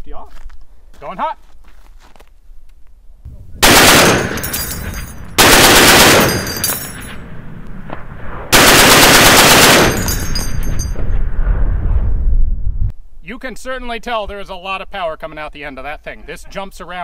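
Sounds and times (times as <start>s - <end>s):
machine gun firing bursts: 3.6s - 4.5s, 5.4s - 6.6s, 8.5s - 10.1s
spent brass clinking: 4.0s - 7.3s, 9.7s - 11.0s.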